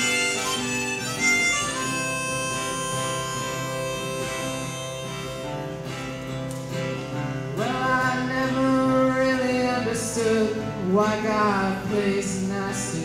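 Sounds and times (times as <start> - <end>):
harmonica playing: 0.0 - 6.3
acoustic guitar: 0.0 - 13.0.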